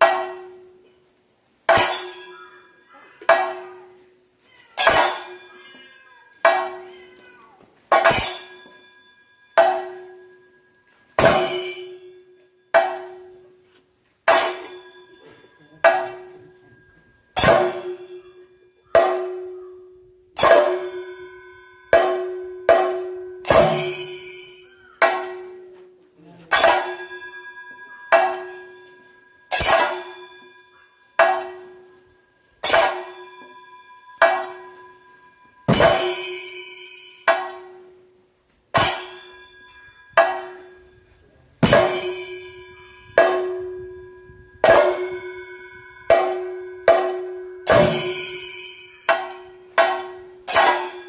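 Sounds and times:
ringing cymbals: 0:01.8 - 0:03.0, 0:08.0 - 0:13.1, 0:14.3 - 0:19.7, 0:20.3 - 0:25.1, 0:26.4 - 0:38.0, 0:38.7 - 0:51.0
drum strokes: 0:18.9 - 0:19.7, 0:20.4 - 0:25.8, 0:31.2 - 0:37.9, 0:38.7 - 0:39.4, 0:41.6 - 0:51.0.

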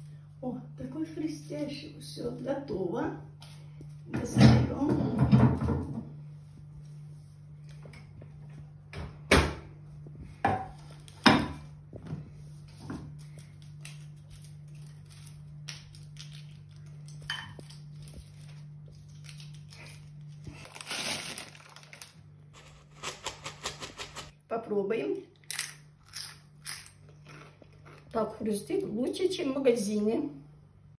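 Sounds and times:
steady low hum: 0:00.0 - 0:30.9
chips rustling on paper: 0:17.7 - 0:24.2.

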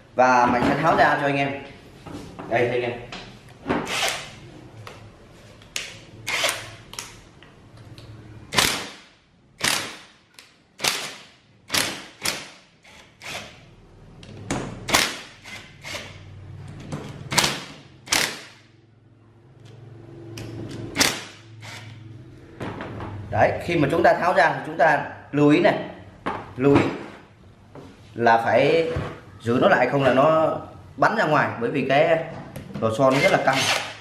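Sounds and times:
impact wrench hammering: 0:08.5 - 0:10.2, 0:10.8 - 0:13.6, 0:14.9 - 0:16.1, 0:17.3 - 0:18.6, 0:21.0 - 0:21.9.

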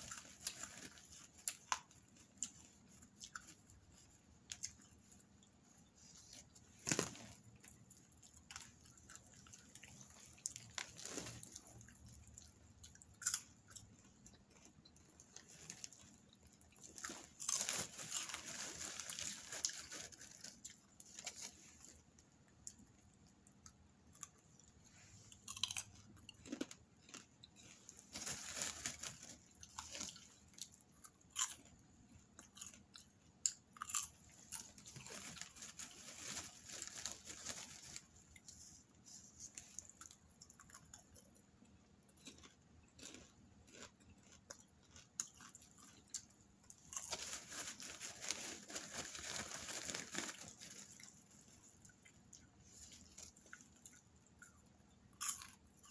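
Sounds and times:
popcorn being chewed: 0:00.0 - 0:55.9
plastic bag rustling: 0:06.0 - 0:08.0, 0:10.4 - 0:11.6, 0:17.0 - 0:22.0, 0:27.7 - 0:30.2, 0:34.7 - 0:39.8, 0:46.9 - 0:51.6.

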